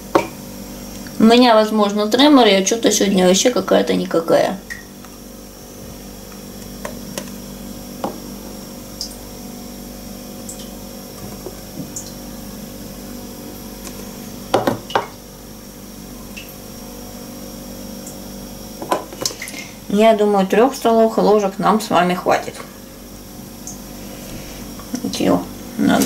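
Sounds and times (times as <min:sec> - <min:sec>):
steady low hum: 0:00.0 - 0:26.0
oil trickling and dripping: 0:10.3 - 0:12.3.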